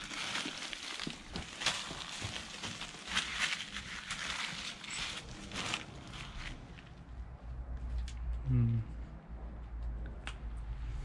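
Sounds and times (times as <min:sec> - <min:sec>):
footsteps on rough ground: 0:00.0 - 0:06.8.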